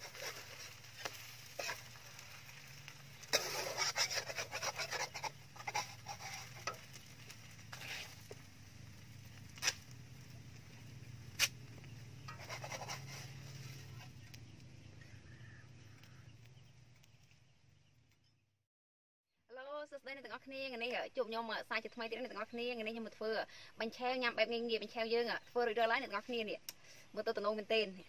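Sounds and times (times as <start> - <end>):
metal spoon scraping in a wok: 0.0 - 2.4, 3.2 - 8.5, 12.2 - 14.3.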